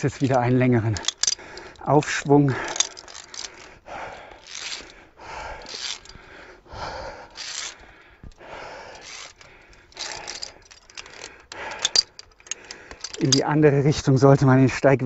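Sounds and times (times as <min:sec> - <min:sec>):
person breathing hard: 0:01.0 - 0:01.9, 0:02.5 - 0:13.2.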